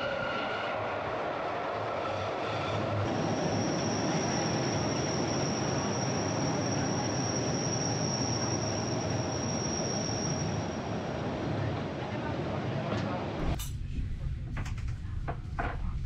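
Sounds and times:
high-pitched wheel squeal: 2.1s - 10.8s.

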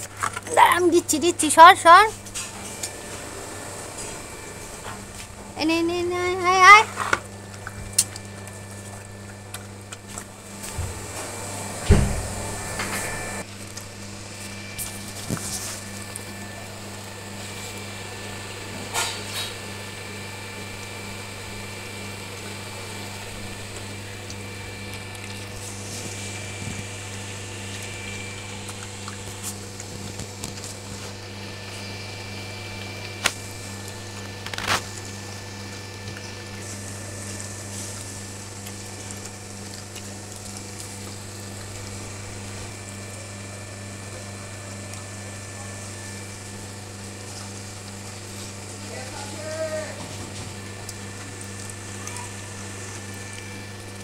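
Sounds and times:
low mechanical hum: 0.0s - 54.0s
dogs eating from plastic bowls: 6.2s - 11.0s.

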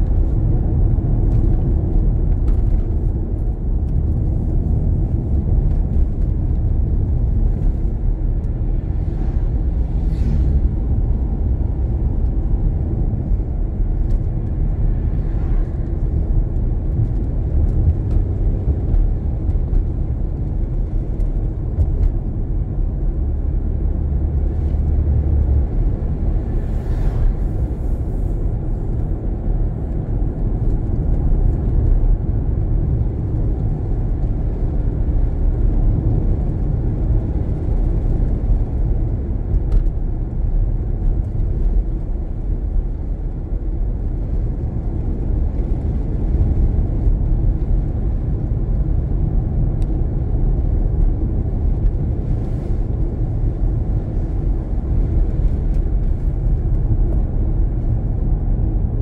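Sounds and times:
car engine and tyres rumbling: 0.0s - 59.0s
passing car swish: 8.7s - 10.8s, 14.9s - 15.8s, 26.4s - 28.1s.

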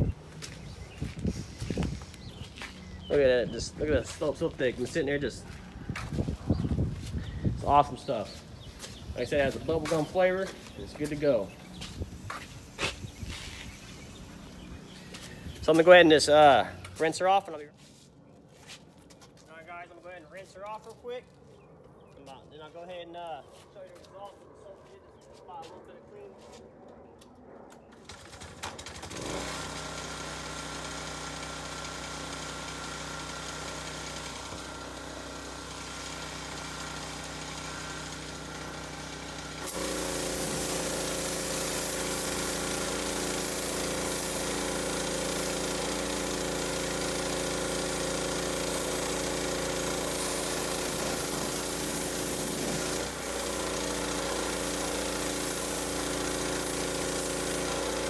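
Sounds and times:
pressure washer running: 0.4s - 17.4s, 28.2s - 58.0s
water jet spraying on car: 39.6s - 58.0s.

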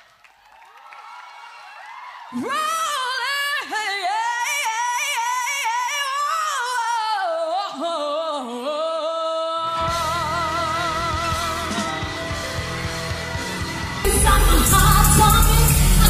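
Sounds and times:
woman singing soprano: 2.3s - 12.1s, 14.0s - 16.0s
backing band playing: 9.8s - 16.0s.

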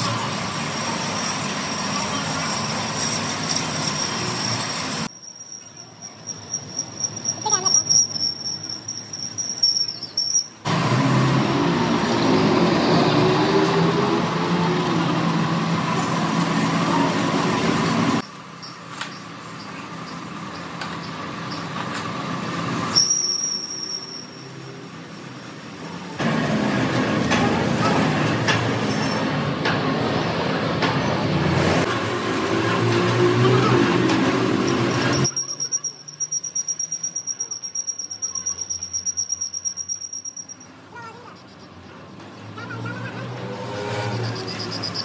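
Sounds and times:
heavy factory machinery din: 25.4s - 35.6s.

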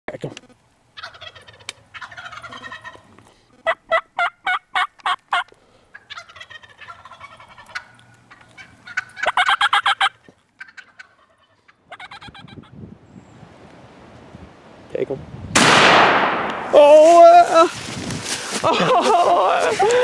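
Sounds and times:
turkey gobbling: 0.9s - 12.8s
turkey yelps: 1.0s - 12.7s.

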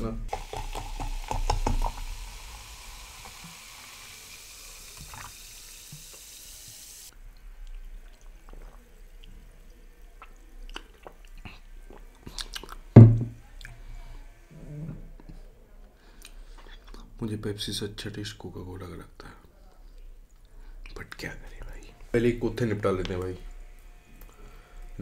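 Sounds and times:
soda pouring into glass mug: 0.3s - 7.1s
soda fizzing: 0.3s - 12.8s
sipping and swallowing: 5.0s - 5.4s, 7.6s - 12.8s
loud thump: 13.0s - 13.4s.

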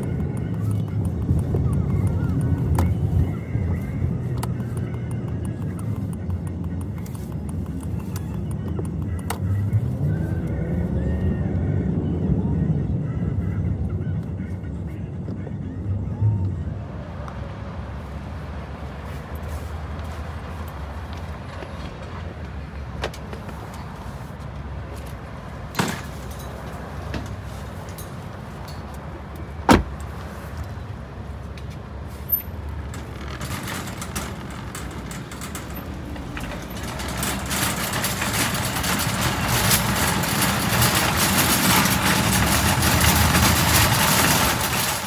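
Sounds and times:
hissy tyre noise: 0.0s - 11.4s, 16.8s - 45.0s
car engine and road rumble: 0.0s - 45.0s.

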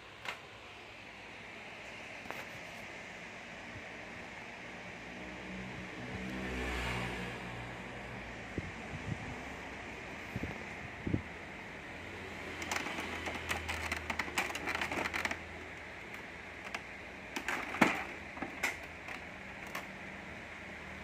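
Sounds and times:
plastic clicks and knocks: 12.6s - 15.8s, 16.6s - 19.9s.

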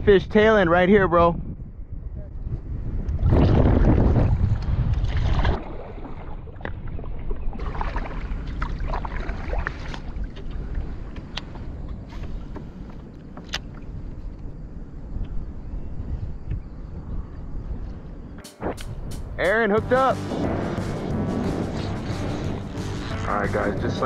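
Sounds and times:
wind buffeting microphone: 0.0s - 19.6s
waves lapping against plastic hull: 3.1s - 14.4s.

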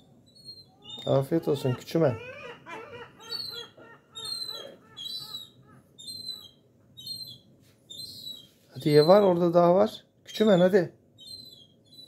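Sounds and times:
young gull begging calls: 0.3s - 7.4s.

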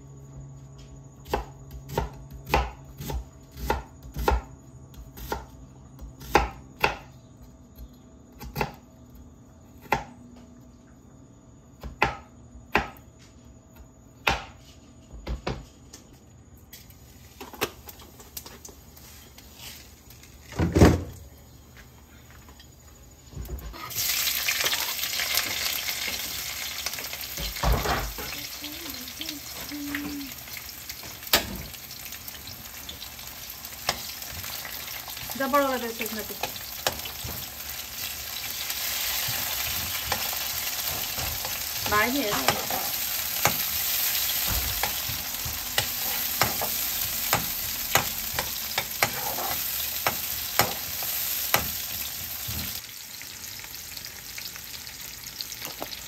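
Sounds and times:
vegetables sizzling in oil: 16.7s - 21.2s, 22.6s - 56.0s.

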